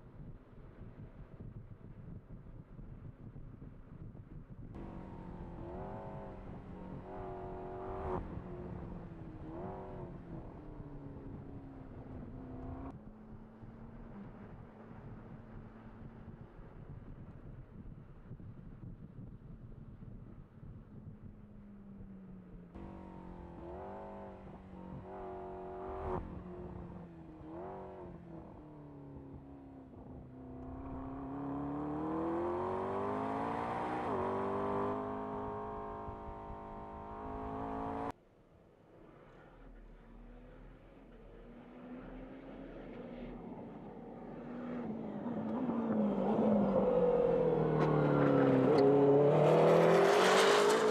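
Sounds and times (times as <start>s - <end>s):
race car engine revving: 4.8s - 12.9s, 22.8s - 38.1s, 41.2s - 50.9s.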